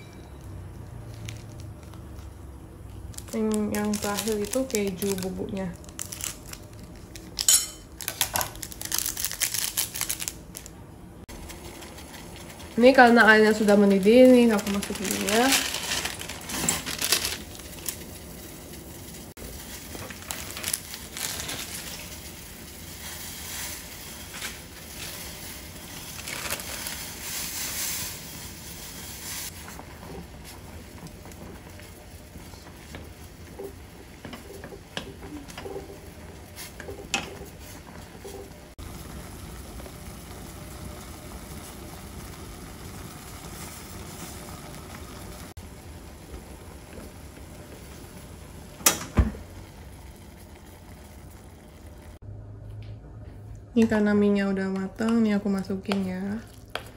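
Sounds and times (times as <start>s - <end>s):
water boiling in a saucepan: 11.3s - 52.2s, 54.6s - 56.9s.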